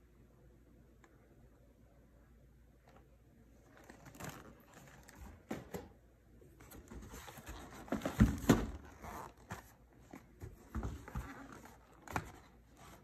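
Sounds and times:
cardboard scraping and rustling: 6.6s - 13.0s.

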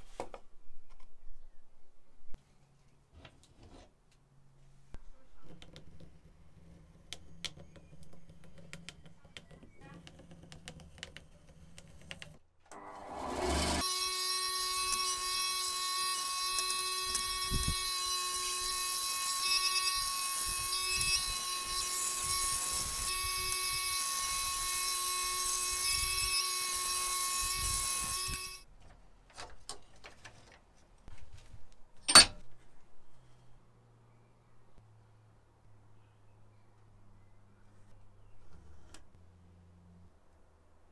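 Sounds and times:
pencil scratching on wood: 5.5s - 12.4s
band saw cutting wood: 12.7s - 28.6s.

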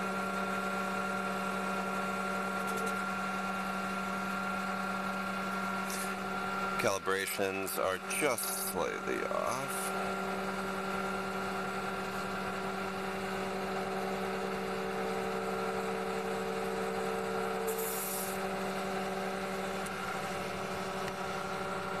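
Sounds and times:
hydraulic pump humming: 0.0s - 22.0s
short hiss: 17.7s - 18.4s.

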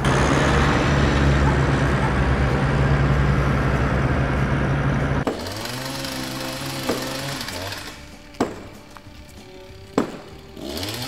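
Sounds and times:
tractor engine running: 0.0s - 11.0s
music: 2.3s - 11.0s.

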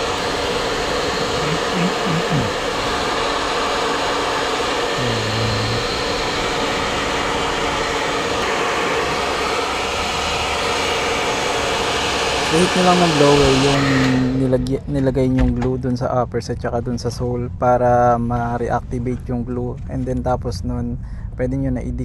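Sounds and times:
hot-air blower running: 0.0s - 14.8s.

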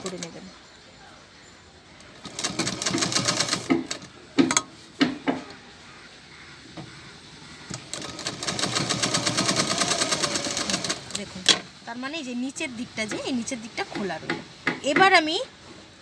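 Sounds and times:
sewing machine stitching: 2.2s - 4.1s, 7.7s - 11.6s.

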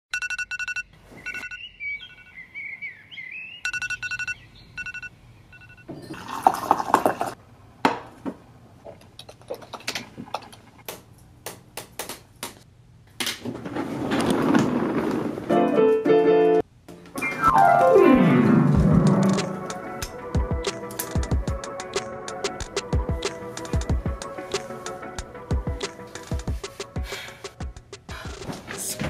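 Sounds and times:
alarm clock beeping: 0.1s - 1.6s, 3.6s - 5.8s
wavering chirp: 0.8s - 6.1s
office chair rolling on wooden floor: 13.4s - 15.6s.

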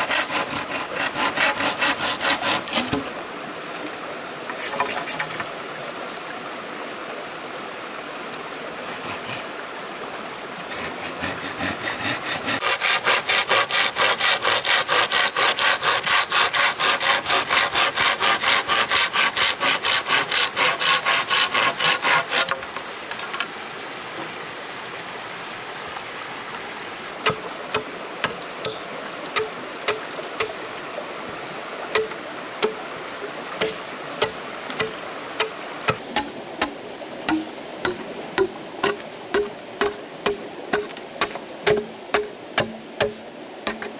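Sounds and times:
hand saw cutting wood: 0.0s - 3.1s, 4.5s - 5.6s, 8.9s - 9.5s, 10.7s - 22.7s, 27.2s - 28.8s, 29.4s - 30.6s, 32.0s - 32.8s, 33.6s - 43.9s
sharp irregular knocks: 27.2s - 28.8s, 32.0s - 32.8s, 33.6s - 43.9s.

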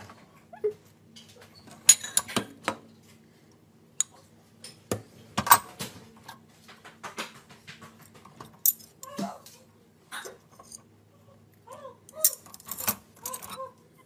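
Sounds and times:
faint steady hum: 0.0s - 14.0s
dishes and cutlery clattering: 1.8s - 2.5s.

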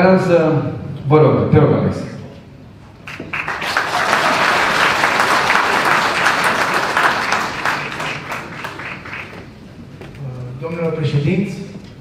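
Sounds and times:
audience applauding: 3.0s - 9.6s.

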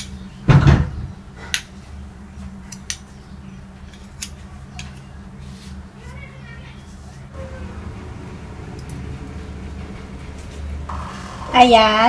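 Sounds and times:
low hum: 7.3s - 12.0s.

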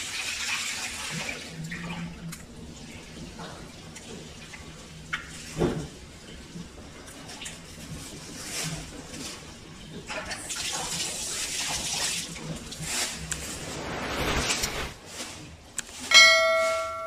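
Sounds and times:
water running and splashing: 0.0s - 13.4s.

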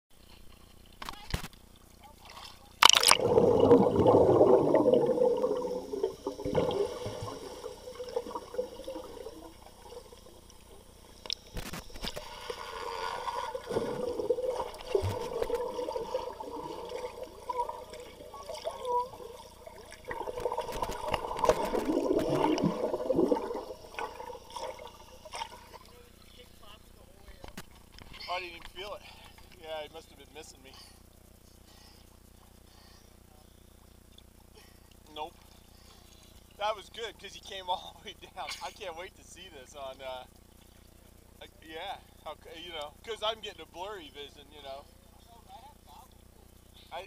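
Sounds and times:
bubbles underwater: 2.9s - 10.9s, 13.4s - 25.8s
underwater rushing and burbling: 2.9s - 25.9s.

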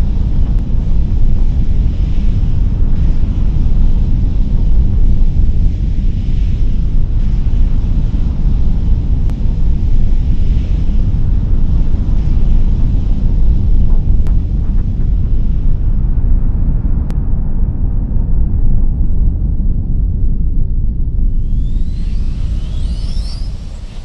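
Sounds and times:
rocket engines roaring: 21.2s - 24.0s.

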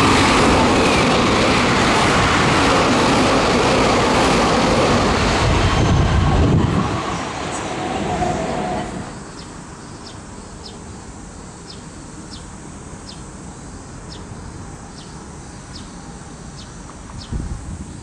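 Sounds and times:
insect chirping: 8.2s - 18.0s.

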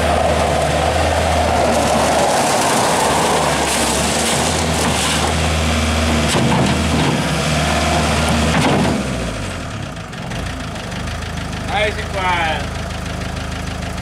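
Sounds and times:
tyres crunching over gravel: 0.0s - 7.3s
diesel engine running: 0.0s - 14.0s.

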